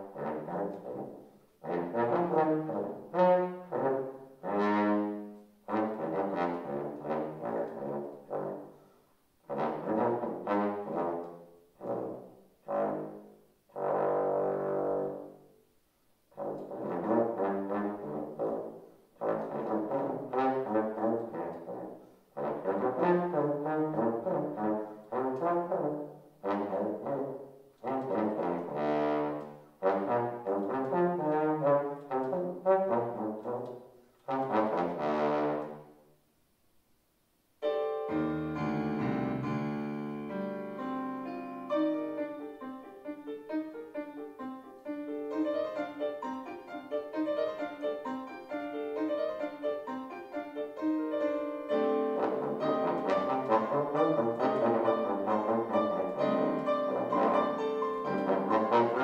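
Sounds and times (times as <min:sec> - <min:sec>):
bass trombone phrases: 0:00.0 - 0:08.8, 0:09.4 - 0:15.5, 0:16.3 - 0:36.0, 0:50.7 - 0:59.0
piano chords and runs: 0:37.6 - 0:59.0.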